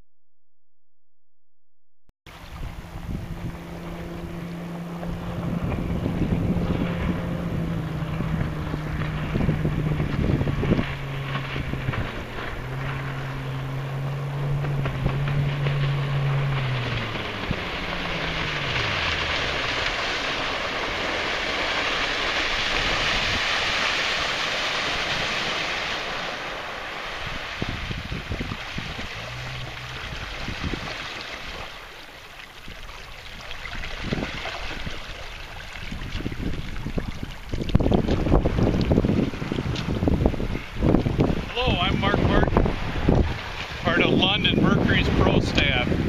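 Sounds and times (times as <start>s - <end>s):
outboard motor drone: 2.3s - 46.0s
wind buffeting microphone: 2.4s - 25.9s, 27.0s - 31.7s, 32.6s - 46.0s
rushing water hiss: 18.0s - 32.0s.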